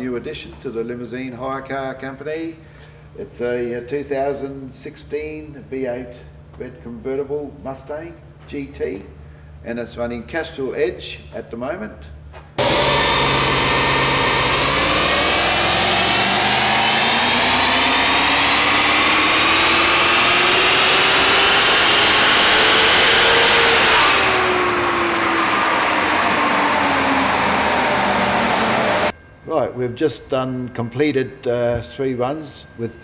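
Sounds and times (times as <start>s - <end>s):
engine at full throttle: 12.6s - 29.1s.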